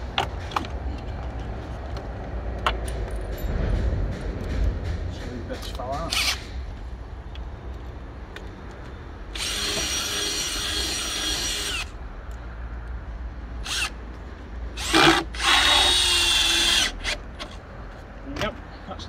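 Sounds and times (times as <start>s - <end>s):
cordless drill driving screw: 6.1s - 6.4s, 9.4s - 11.9s, 13.6s - 14.0s, 14.8s - 17.5s.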